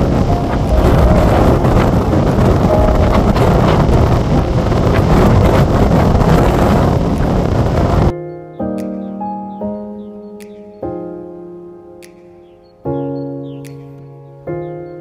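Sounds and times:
surf breaking against rocks: 0:00.0 - 0:08.1
wind buffeting microphone: 0:00.0 - 0:08.1.

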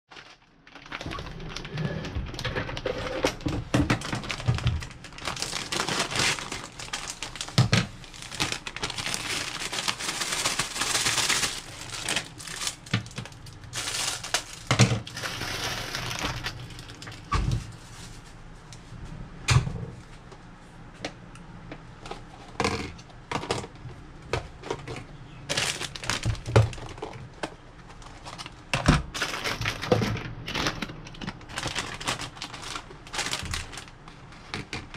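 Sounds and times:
plastic containers clicking and knocking: 0:00.1 - 0:16.6, 0:22.1 - 0:34.9
plastic bag crinkling: 0:00.1 - 0:17.3, 0:24.6 - 0:34.9
scissors cutting plastic bag: 0:03.2 - 0:17.2, 0:25.5 - 0:27.2, 0:29.2 - 0:34.9.

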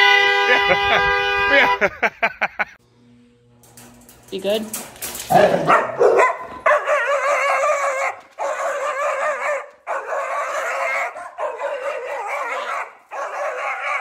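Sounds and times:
dog howling and whining: 0:06.6 - 0:14.0.

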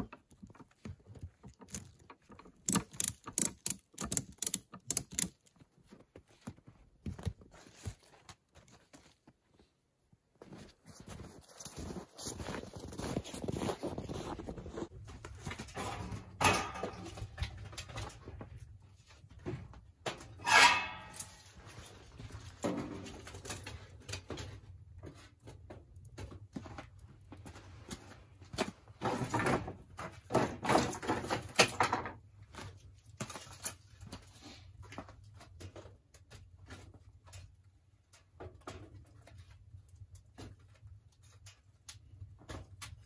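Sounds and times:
firewood sticks clattering: 0:15.5 - 0:18.2, 0:20.3 - 0:21.6
squealing scrape: 0:20.4 - 0:21.5.

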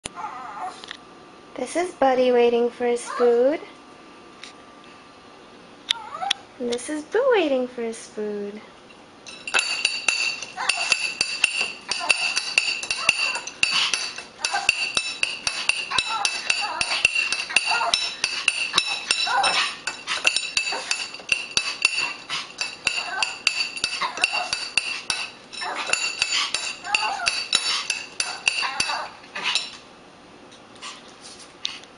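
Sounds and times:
cutlery clinking against a dish: 0:09.3 - 0:29.8.

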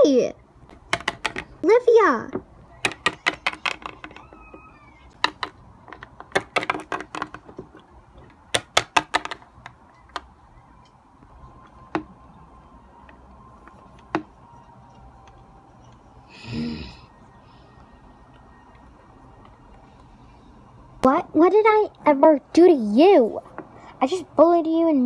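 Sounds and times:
plastic toys clacking on wooden table: 0:00.7 - 0:01.6, 0:02.3 - 0:10.3.

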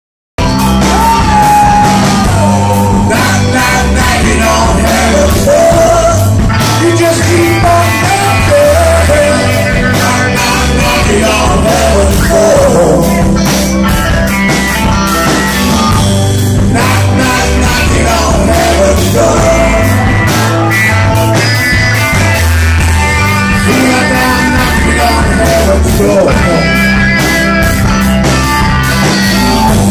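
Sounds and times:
live rock band playing: 0:00.4 - 0:29.9
man singing: 0:00.9 - 0:13.7, 0:16.6 - 0:20.8, 0:23.5 - 0:27.0.

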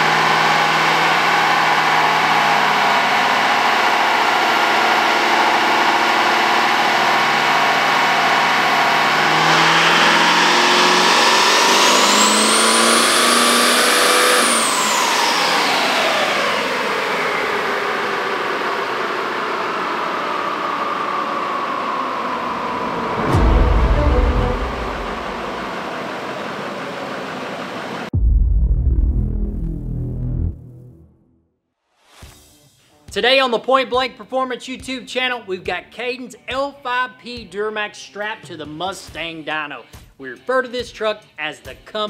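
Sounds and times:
diesel engine running: 0:00.0 - 0:28.1
high-pitched turbo whistle: 0:22.1 - 0:25.8.

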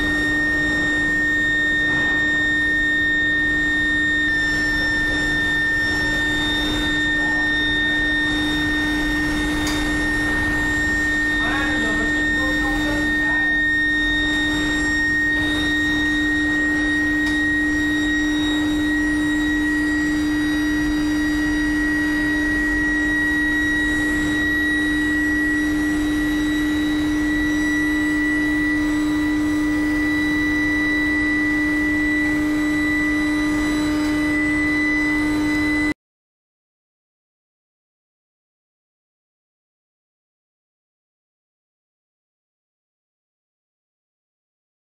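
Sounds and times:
high-pitched whine: 0:00.0 - 0:36.0
low electrical hum: 0:00.0 - 0:36.0.

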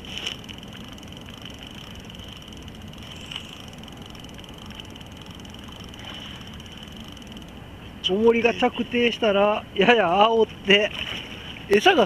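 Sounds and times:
faint ticks: 0:00.0 - 0:07.6
outdoor background noise: 0:00.0 - 0:12.0.

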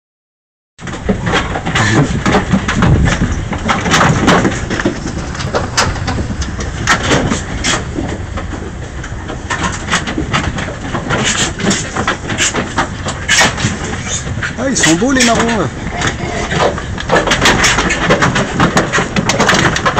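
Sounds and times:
low rumble: 0:00.8 - 0:17.9
pigs grunting and squealing: 0:01.6 - 0:02.4.

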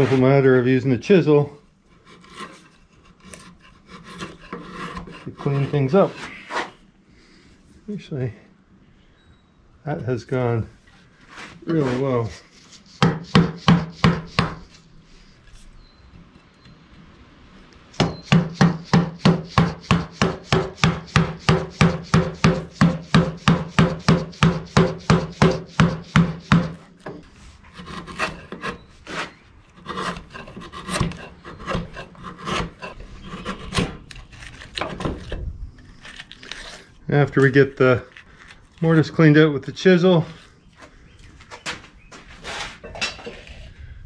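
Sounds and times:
chisel scraping wood chips: 0:00.0 - 0:00.4, 0:01.9 - 0:06.8, 0:11.2 - 0:14.8, 0:18.0 - 0:37.0.

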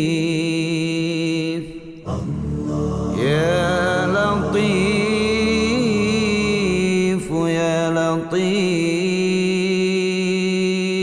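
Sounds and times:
group of voices chanting: 0:02.0 - 0:06.9.

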